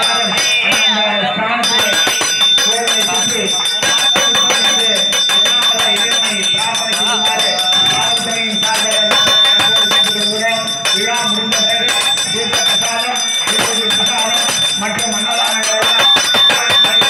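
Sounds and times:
bell ringing continuously: 0.0s - 17.0s
men chanting: 0.0s - 17.0s.

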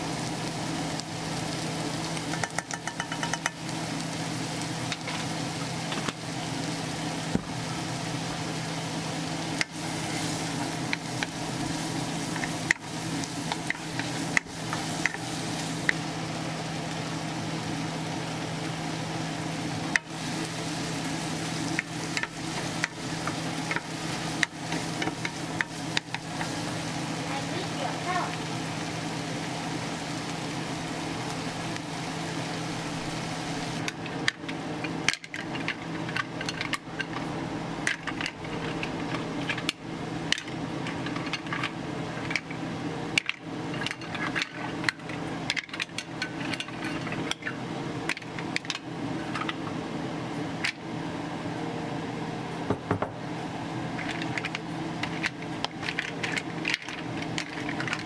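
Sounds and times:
onions sizzling in a frying pan: 0.0s - 58.0s
mussel shells clattering in a pan: 33.9s - 37.2s, 37.9s - 49.6s, 53.9s - 58.0s.

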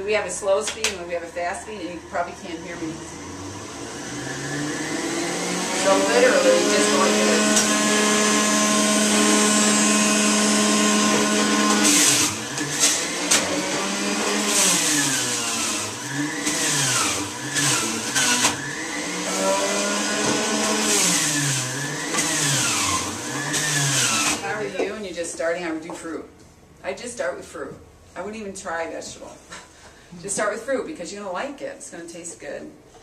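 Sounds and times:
juicer motor whining: 2.6s - 24.7s.

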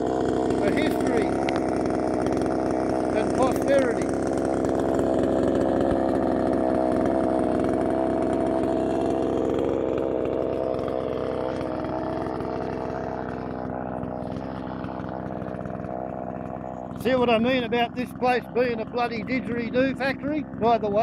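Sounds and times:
chainsaw idling: 0.0s - 21.0s.

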